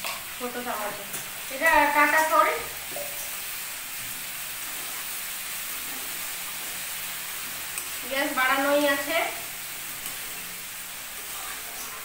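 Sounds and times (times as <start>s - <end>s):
vegetables sizzling in hot oil: 0.0s - 12.0s.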